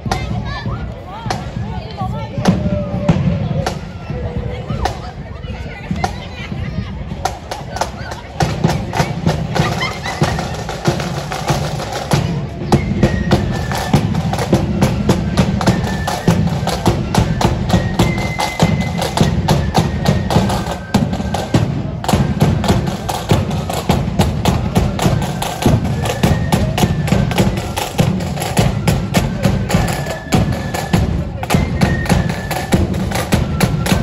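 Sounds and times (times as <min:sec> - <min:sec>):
snare drums rattling: 0:07.2 - 0:34.0
faint flute melody: 0:08.7 - 0:34.0.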